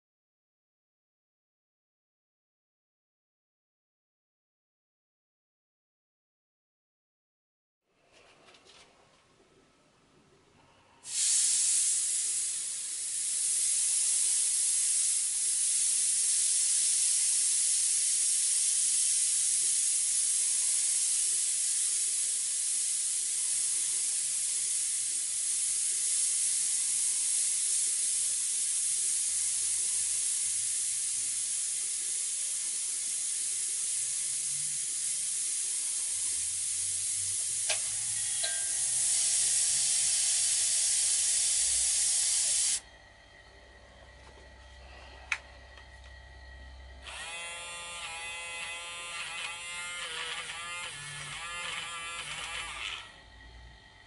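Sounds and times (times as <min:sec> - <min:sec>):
airbrush air hiss: 0:11.0 - 0:42.9.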